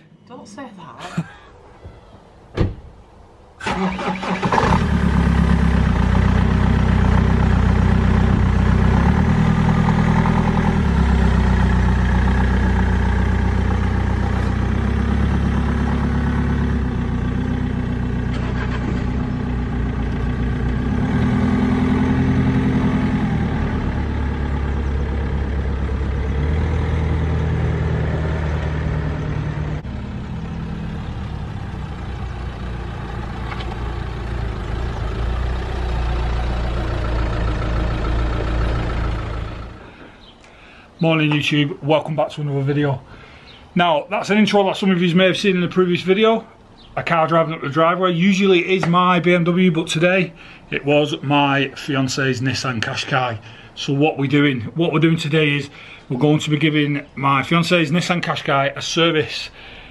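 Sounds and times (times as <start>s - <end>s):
car engine idling and pulling away: 2.6s - 41.6s, 44.4s - 59.9s
car driving up driveway: 3.6s - 41.6s.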